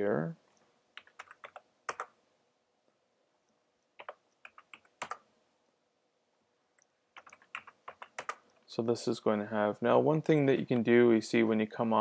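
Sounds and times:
keyboard typing: 0.9 - 2.2, 3.9 - 5.3, 6.8 - 8.6.

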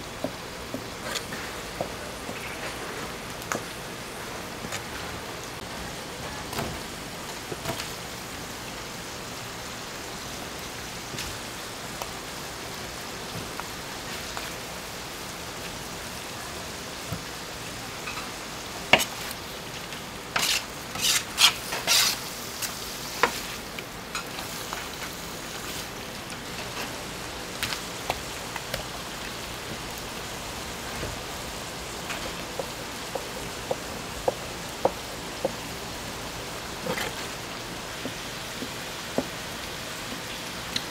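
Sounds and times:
meat sizzling on griddle: 6.2 - 40.9
utensils scraping hot plate: 20.3 - 23.5.

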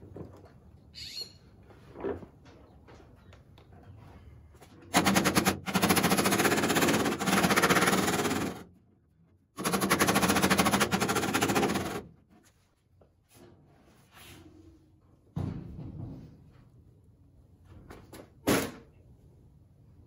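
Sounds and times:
rapid metal hammering: 4.9 - 8.7, 9.6 - 12.1.

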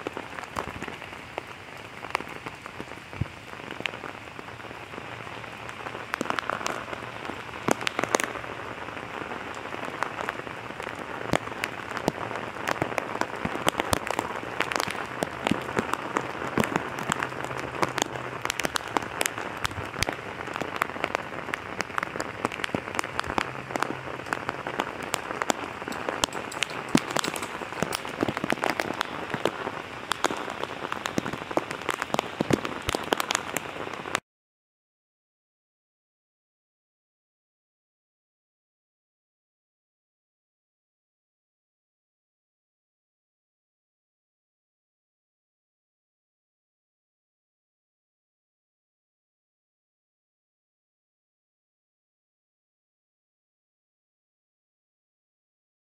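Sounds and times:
heavy rain on pavement: 0.0 - 34.2.

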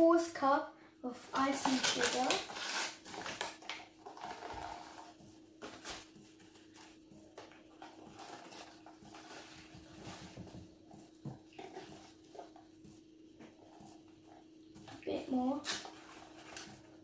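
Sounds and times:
faint steady hum: 0.0 - 17.0
paper carton rustling and tapping: 1.4 - 12.8.

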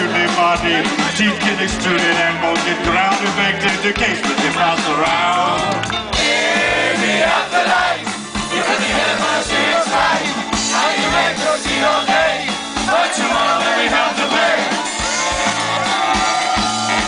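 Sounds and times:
electric guitars: 0.0 - 6.7
drum kit beat: 0.0 - 17.0
swing band playing: 0.0 - 17.0.

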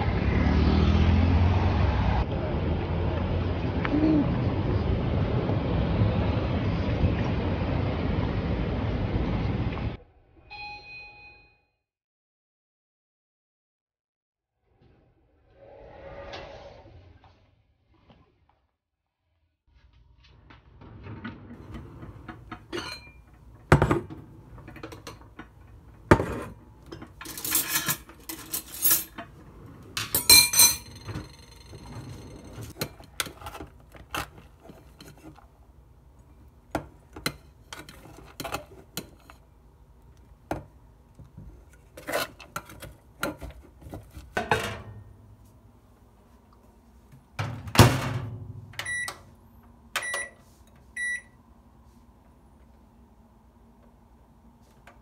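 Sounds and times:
microwave keypad beeps: 10.5 - 11.6, 48.8 - 49.3, 50.0 - 50.4, 51.0 - 51.4
kitchenware knocks and clinks: 21.6 - 29.3, 30.0 - 33.6, 42.6 - 45.1.

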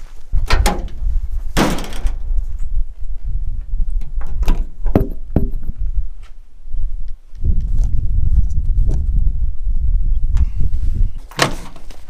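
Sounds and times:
wind buffeting microphone: 0.0 - 11.3
sharp knocks and clunks: 4.0 - 5.8.

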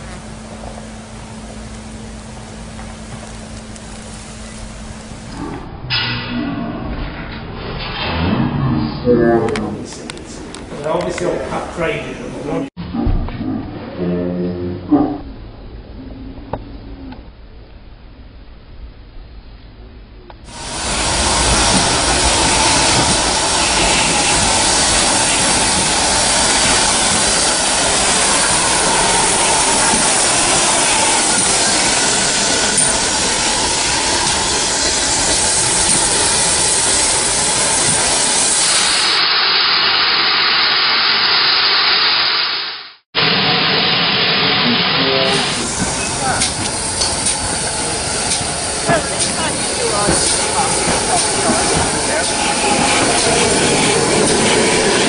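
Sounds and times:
steam locomotive hissing steam: 20.5 - 55.0.

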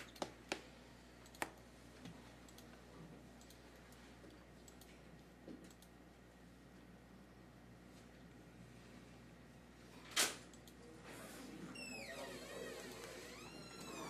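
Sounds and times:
computer mouse clicks: 1.2 - 1.6, 2.4 - 2.8, 3.4 - 4.0, 4.6 - 5.0, 5.6 - 6.0.

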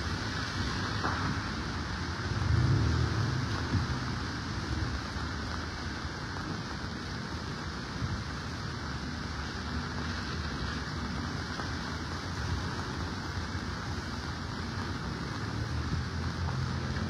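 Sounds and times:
rain falling on wet street: 0.0 - 17.0
low rumble: 1.3 - 5.4.

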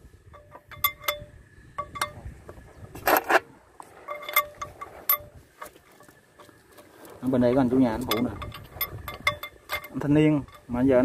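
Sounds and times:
metal gears clinking: 4.0 - 5.3, 7.5 - 11.0.

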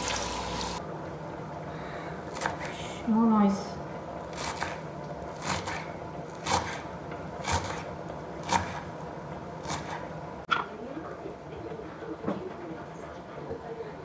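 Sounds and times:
knife chopping on wooden board: 2.3 - 2.7, 4.3 - 4.8, 5.4 - 8.9, 9.6 - 10.1.

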